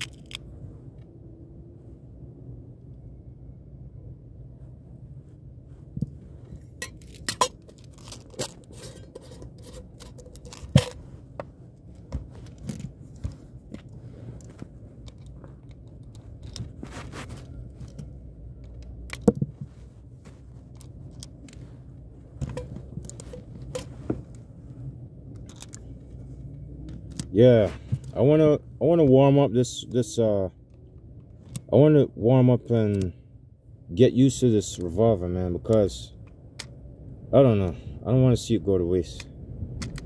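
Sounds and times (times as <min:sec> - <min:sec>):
low steady rumble: 0:00.0 - 0:40.0
metal shells clicking: 0:25.4 - 0:25.9.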